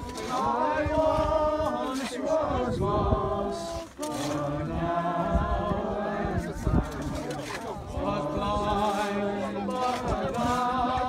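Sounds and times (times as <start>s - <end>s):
group singing a hymn: 0.0s - 11.0s.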